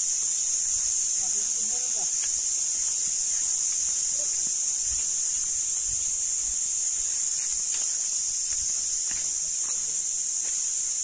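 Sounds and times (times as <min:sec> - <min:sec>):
insect chorus drone: 0:00.0 - 0:11.0
footfalls on leaf litter: 0:06.5 - 0:11.0.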